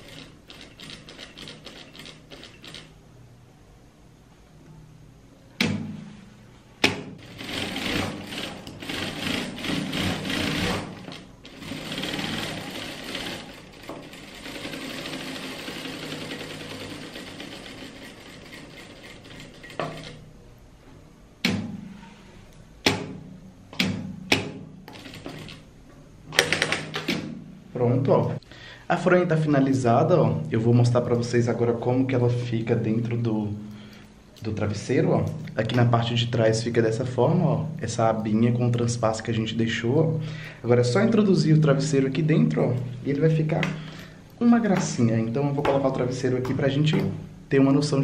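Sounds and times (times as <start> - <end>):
sewing machine running: 0.0 - 2.9, 7.2 - 20.2, 24.9 - 25.6.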